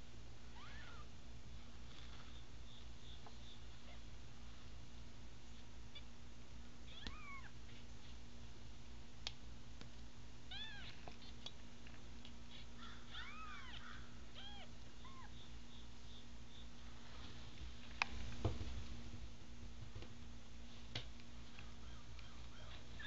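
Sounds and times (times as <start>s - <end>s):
faint low hum: 0.0s - 23.0s
kittens mewing: 0.6s - 1.1s, 6.9s - 7.9s, 12.5s - 15.4s.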